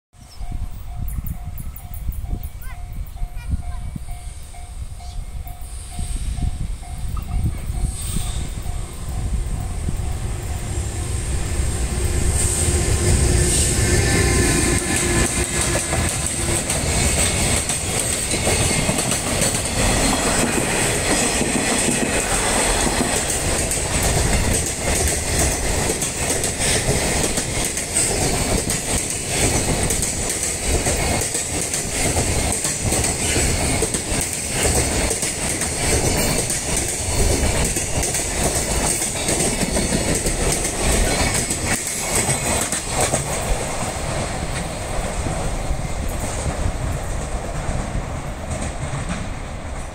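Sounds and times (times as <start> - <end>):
freight train rumbling past: 0.2 - 49.9
wheels clickety-clack over rail joints: 11.8 - 49.9.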